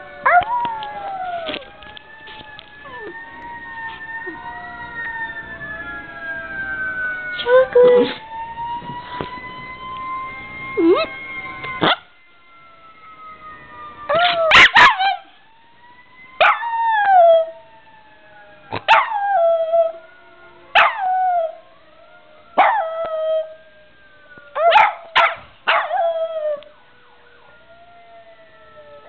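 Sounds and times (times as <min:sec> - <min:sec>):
fire truck siren: 0:00.0 - 0:29.0
dog howling: 0:02.8 - 0:03.4.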